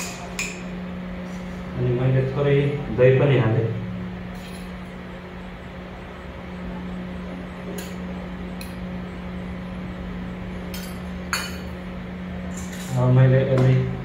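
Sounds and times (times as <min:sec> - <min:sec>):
steady low hum: 0:00.0 - 0:14.0
spoon clinking against steel bowls: 0:10.7 - 0:11.8.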